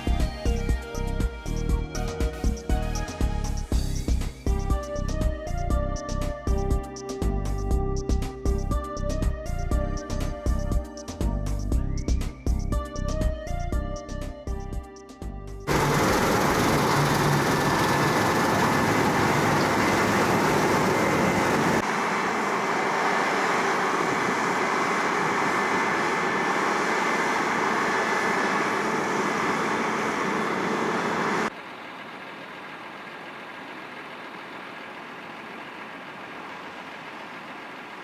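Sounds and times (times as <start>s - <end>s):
combine harvester engine and threshing hum: 15.7s - 38.0s.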